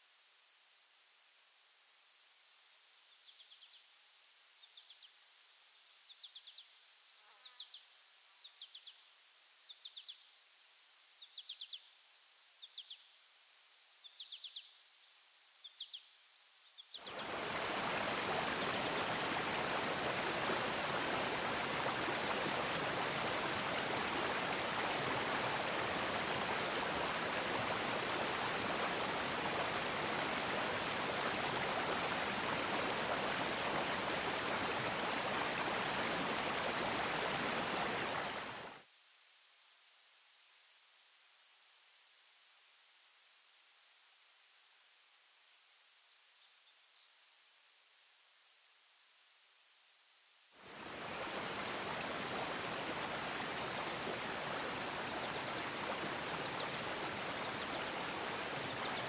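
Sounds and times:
stream rushing over rocks: 0:17.0 - 0:38.8, 0:50.6 - 0:59.0.

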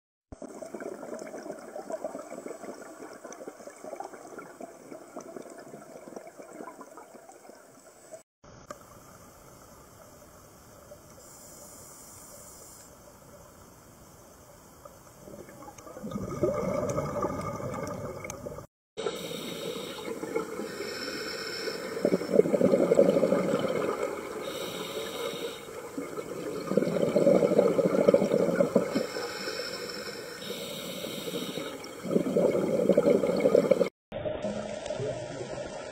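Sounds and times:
underwater water hiss: 0:08.8 - 0:15.2, 0:19.0 - 0:33.9
bubbling surges: 0:15.3 - 0:18.7, 0:21.8 - 0:24.6, 0:25.8 - 0:29.1, 0:31.8 - 0:35.9.

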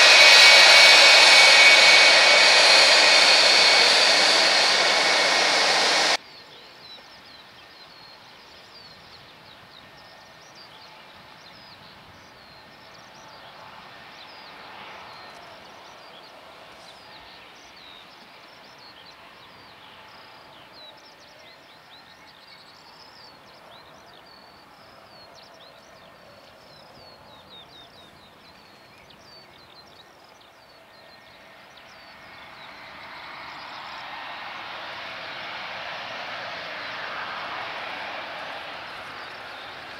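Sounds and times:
jet engine noise: 0:00.0 - 0:06.2, 0:31.1 - 0:39.9.

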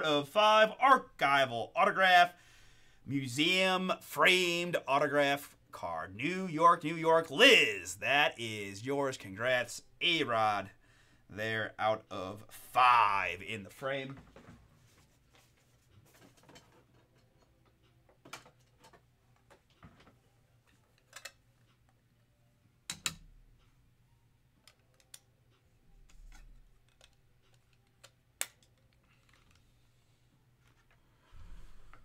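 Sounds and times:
faint steady hum: 0:00.0 - 0:18.2.

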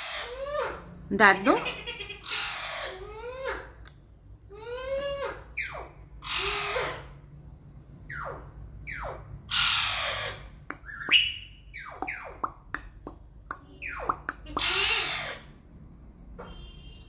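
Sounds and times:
parakeet squawking: 0:00.0 - 0:03.8, 0:04.5 - 0:07.2, 0:08.1 - 0:12.7, 0:13.6 - 0:15.6.

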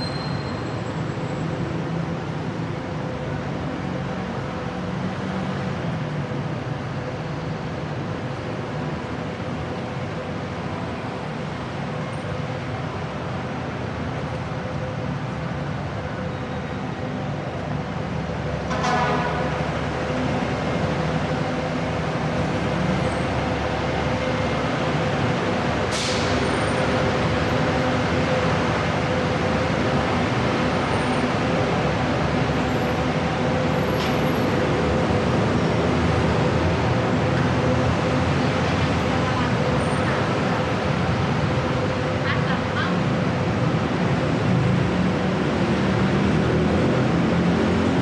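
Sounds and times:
road traffic noise: 0:00.0 - 0:48.0.

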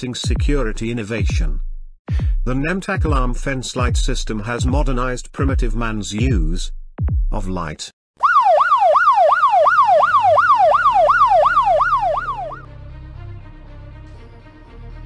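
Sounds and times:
electronic alarm siren wailing: 0:08.2 - 0:12.7
background music: 0:09.8 - 0:15.0.

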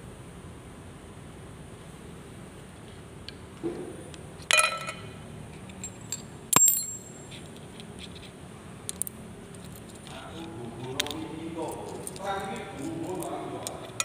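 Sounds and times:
steel pieces clinking: 0:04.4 - 0:07.4, 0:10.9 - 0:14.0.

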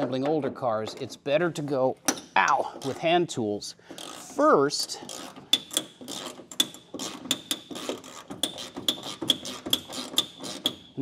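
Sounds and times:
socket ratchet clicking: 0:05.1 - 0:11.0.

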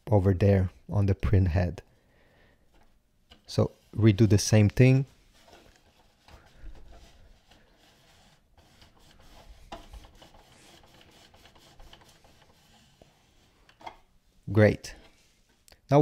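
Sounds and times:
printer carriage rubbing on paper towel: 0:03.6 - 0:14.0.

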